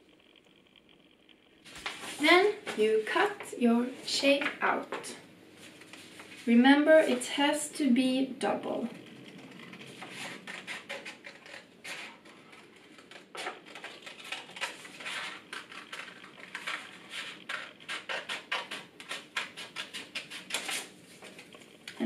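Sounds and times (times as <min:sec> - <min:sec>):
scissors snipping paper: 0:09.3 - 0:21.5.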